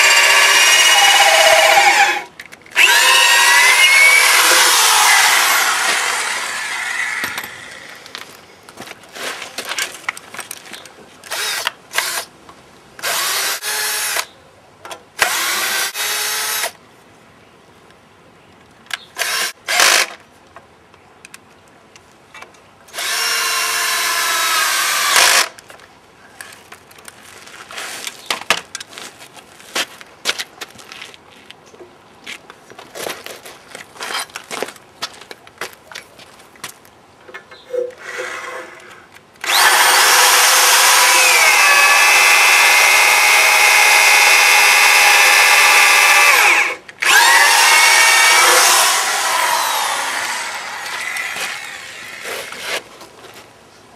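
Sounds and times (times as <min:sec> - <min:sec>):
power drill drilling into log: 0:00.0 - 0:08.0, 0:23.0 - 0:25.5, 0:39.4 - 0:52.6.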